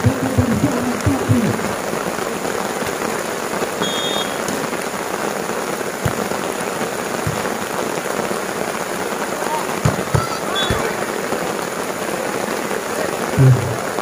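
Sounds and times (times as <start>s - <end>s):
dull low thumps: 0.0s - 1.8s, 7.3s - 7.6s, 13.4s - 13.8s
steady rain: 0.0s - 14.0s.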